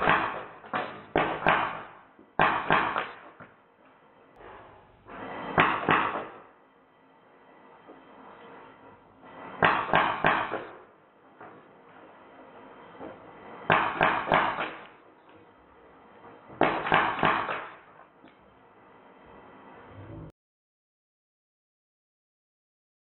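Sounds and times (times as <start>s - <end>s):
air gun firing bursts: 0.0s - 3.4s, 5.1s - 6.5s, 9.5s - 10.9s, 13.7s - 15.0s, 16.6s - 18.0s
pellets striking target: 0.0s - 3.4s, 5.5s - 6.4s, 9.6s - 10.8s, 13.7s - 14.9s, 16.6s - 17.9s.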